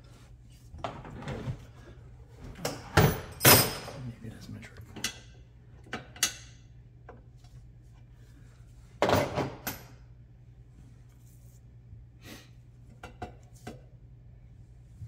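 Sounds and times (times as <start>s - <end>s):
metal tools clinking: 3.2s - 4.0s.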